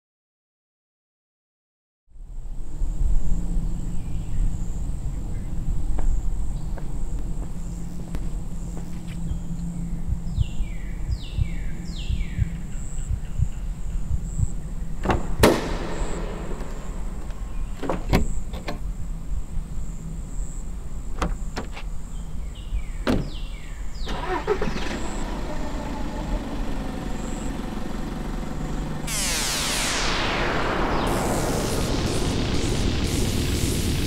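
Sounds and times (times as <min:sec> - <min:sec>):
car door opening and shutting: 0:15.0 - 0:18.9, 0:21.1 - 0:22.0, 0:23.0 - 0:23.4
loud rushing noise: 0:15.2 - 0:18.4, 0:25.9 - 0:34.0.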